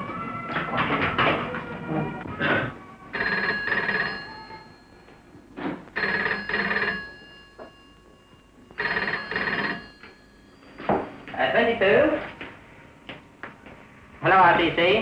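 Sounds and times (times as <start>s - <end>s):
telephone bell ringing: 3.1s - 11.3s.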